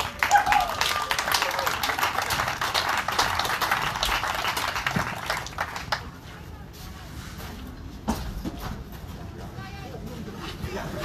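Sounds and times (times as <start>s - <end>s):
crowd applauding: 0.0s - 6.2s.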